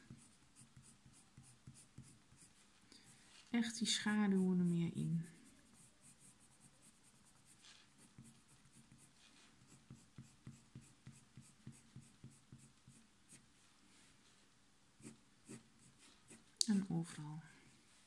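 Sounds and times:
pencil scratching on paper: 0:00.0 - 0:02.7, 0:04.1 - 0:13.4, 0:15.0 - 0:16.5.

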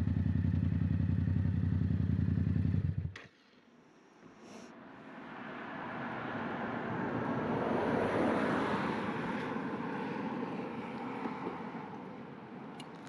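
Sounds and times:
vehicle passing: 0:05.0 - 0:13.0.

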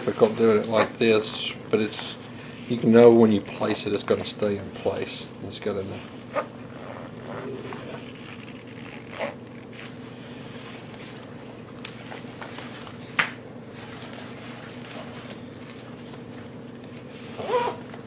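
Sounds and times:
fabric rustling: 0:05.8 - 0:11.2.

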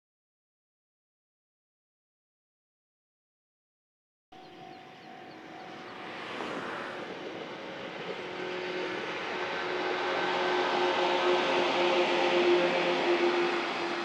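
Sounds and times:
electric train running past: 0:04.4 - 0:14.0.

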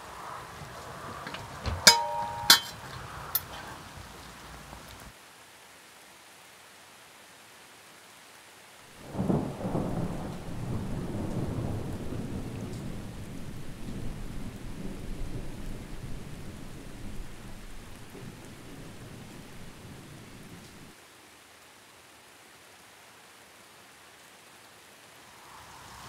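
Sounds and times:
rolling thunder rumble: 0:09.0 - 0:20.9
thunder clap: 0:09.0 - 0:20.9.

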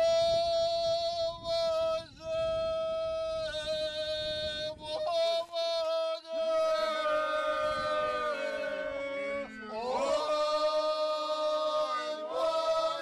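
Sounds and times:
voices with sliding pitches: 0:06.6 - 0:13.0.

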